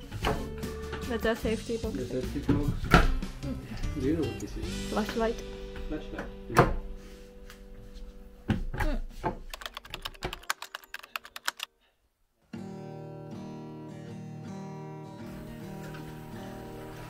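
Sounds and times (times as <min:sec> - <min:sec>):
acoustic guitar song: 0:00.0 - 0:08.5, 0:12.5 - 0:17.0
background music: 0:00.0 - 0:11.7
sharp key clicks: 0:09.5 - 0:11.7.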